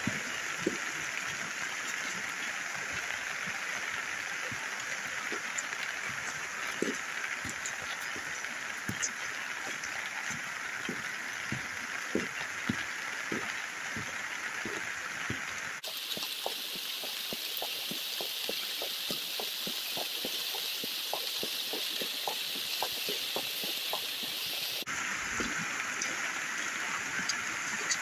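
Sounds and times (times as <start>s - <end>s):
heavy rain falling: 0.0s - 28.0s
running water: 0.0s - 28.0s
drops pattering close by: 4.4s - 24.9s.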